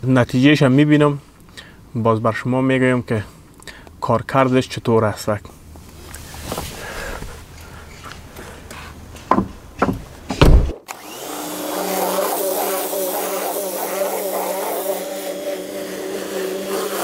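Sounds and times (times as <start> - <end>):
knocks and thumps: 9.2 - 10.8
cleaning machine motor humming: 10.9 - 17.0.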